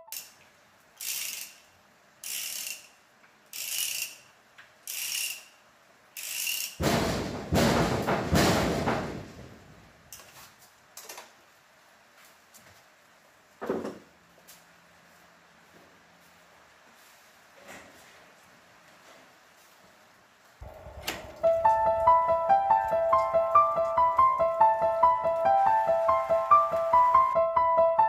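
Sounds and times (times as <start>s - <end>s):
ratchet wrench clicking: 0.1s - 0.4s, 1.0s - 5.6s, 6.2s - 6.8s
knock: 6.8s - 9.6s
loud rattling: 6.8s - 9.9s, 20.6s - 23.8s.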